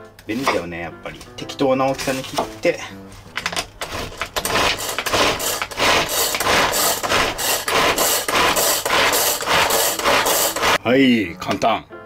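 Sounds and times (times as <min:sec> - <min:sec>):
pull-cord food chopper whirring: 0:03.8 - 0:10.8.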